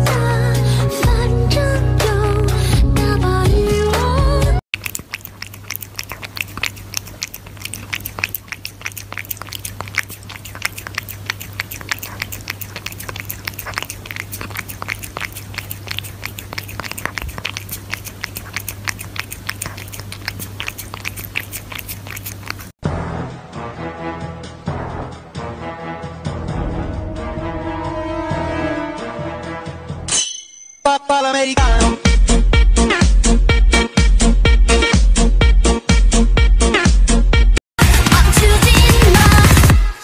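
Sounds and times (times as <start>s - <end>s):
cat lapping liquid: 4.7s - 22.8s
faint steady hum: 4.8s - 22.7s.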